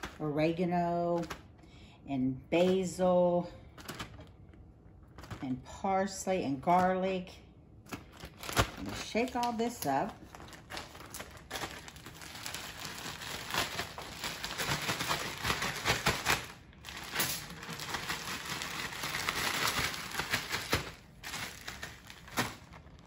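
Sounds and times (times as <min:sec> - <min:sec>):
plastic bag crinkling: 0:07.9 - 0:23.0.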